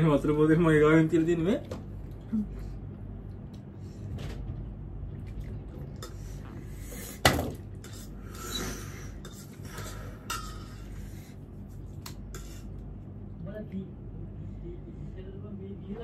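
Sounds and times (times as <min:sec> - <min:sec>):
utensils and dishes clinking: 0:07.8 - 0:10.9.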